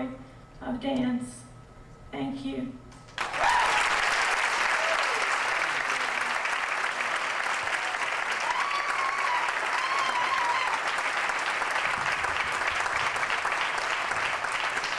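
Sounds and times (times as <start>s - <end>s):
audience applauding: 3.1s - 14.9s.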